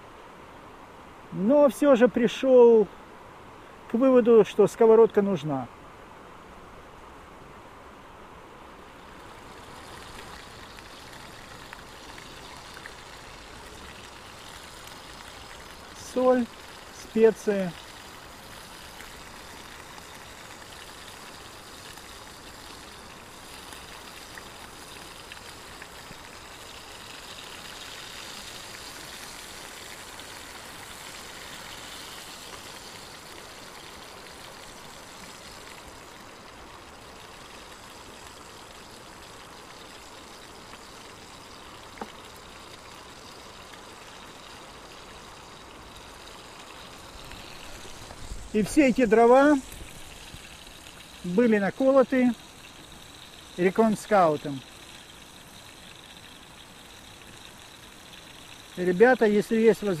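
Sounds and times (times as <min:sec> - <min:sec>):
meat sizzling in a frying pan: 0:27.8 - 0:33.4.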